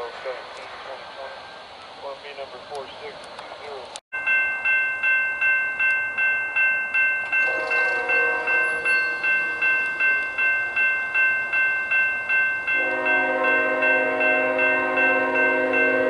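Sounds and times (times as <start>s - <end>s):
crossing warning bell ringing: 4.2s - 16.0s
locomotive horn: 7.4s - 10.3s, 12.7s - 16.0s.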